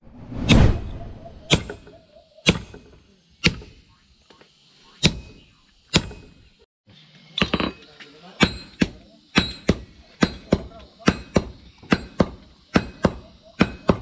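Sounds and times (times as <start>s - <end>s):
hammer striking metal on anvil: 1.5s - 3.8s, 5.0s - 6.5s, 8.4s - 14.0s.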